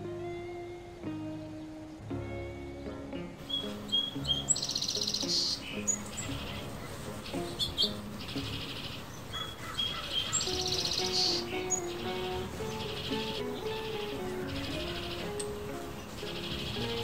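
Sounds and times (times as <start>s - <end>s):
soft background music: 0.0s - 17.0s
bird chirping and trilling: 3.4s - 17.0s.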